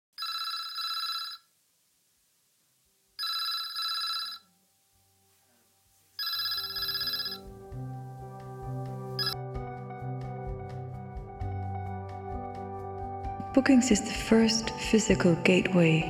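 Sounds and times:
telephone ringing: 0.2 - 1.5, 3.2 - 4.6, 6.2 - 7.6, 9.2 - 9.4.

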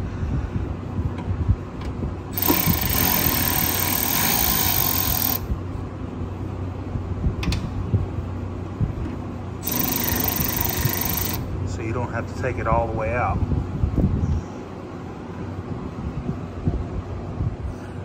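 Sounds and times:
cordless ratchet whirring: 2.3 - 5.5, 9.6 - 11.5.

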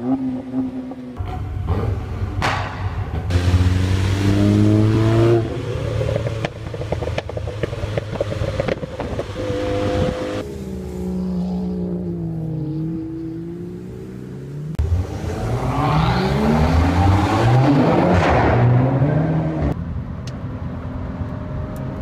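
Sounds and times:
car engine accelerating: 0.0 - 19.8
car engine at moderate revs: 0.0 - 22.0
road and wind noise: 0.0 - 22.0
exhaust crackles and pops: 6.0 - 9.4.

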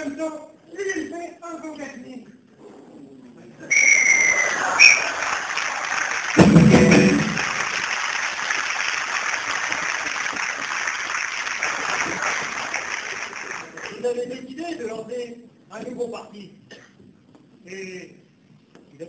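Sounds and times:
referee's whistle blast: 3.7 - 5.1
audience applauding: 3.9 - 14.2
loud low burst: 6.4 - 7.7.

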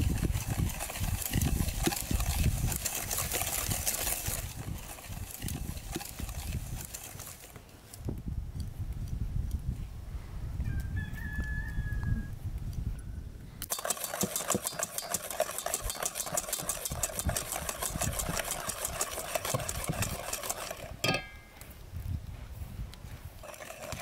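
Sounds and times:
whisk beating batter in bowl: 0.0 - 7.6, 13.7 - 21.2, 23.4 - 24.0.

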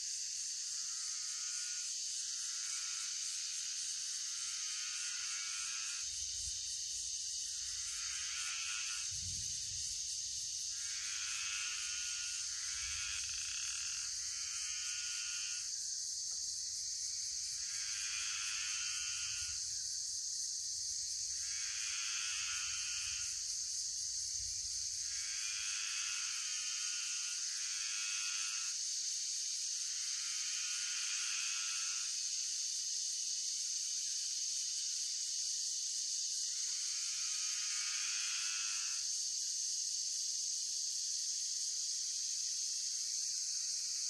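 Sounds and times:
crickets chirping: 0.0 - 44.0
frog calling: 13.0 - 14.0.

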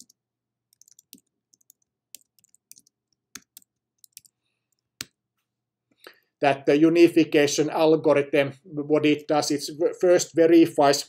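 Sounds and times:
typing on a computer keyboard: 0.0 - 5.1.

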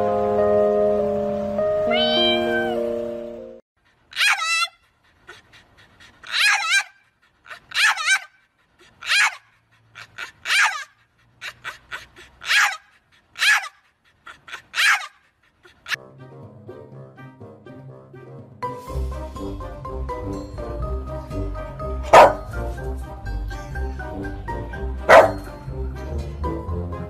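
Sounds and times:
background music: 0.0 - 3.6, 16.0 - 27.0
dog yowling: 4.1 - 4.9, 6.2 - 8.4, 9.0 - 13.8, 14.4 - 15.2, 22.2 - 22.4, 25.1 - 25.4.

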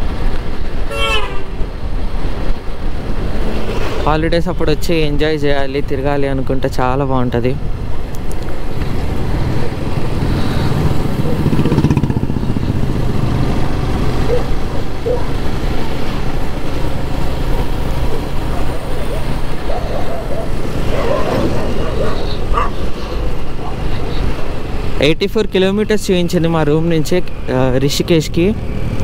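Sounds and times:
road and wind noise: 0.0 - 29.0
motorcycle engine running: 8.9 - 15.6.

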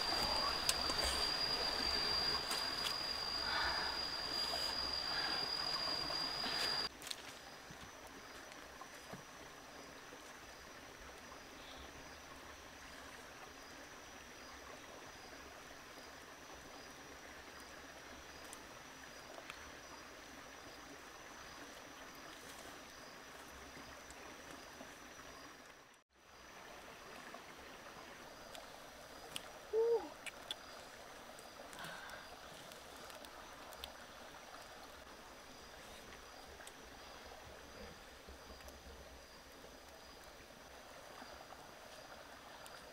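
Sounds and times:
faint high whine: 0.0 - 22.8
running water hiss: 0.0 - 42.9.

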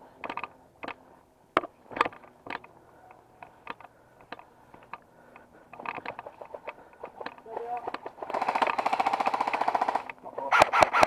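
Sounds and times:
loose camera mount rattling: 0.2 - 1.0, 1.6 - 8.8.

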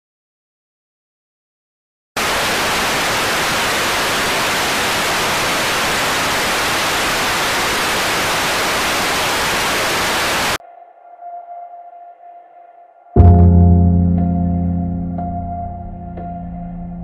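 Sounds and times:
television static hiss: 2.2 - 10.6
faint sustained musical tone: 10.6 - 17.0.

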